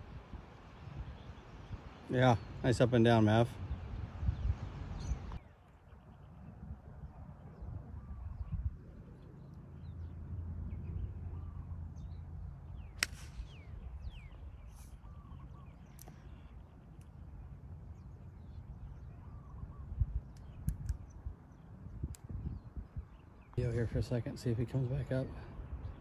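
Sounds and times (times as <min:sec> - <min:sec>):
wind rumbling on microphone: 0:00.0 - 0:26.0
birds calling: 0:00.5 - 0:26.0
golf club striking ball: 0:12.8 - 0:13.7.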